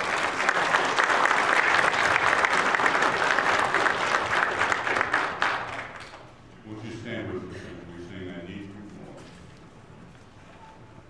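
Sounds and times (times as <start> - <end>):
crowd clapping: 0.0 - 6.4.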